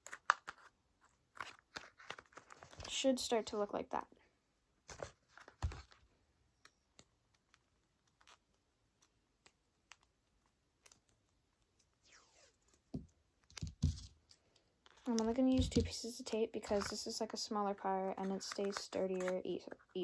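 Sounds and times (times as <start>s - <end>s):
paper rustling: 0.0s - 3.1s, 4.9s - 6.1s, 14.9s - 17.2s, 18.0s - 20.0s.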